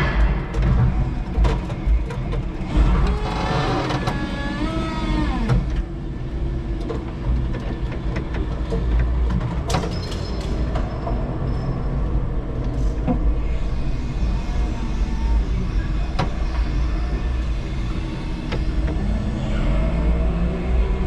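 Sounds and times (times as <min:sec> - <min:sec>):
electric motor whine: 0:02.6 - 0:05.8.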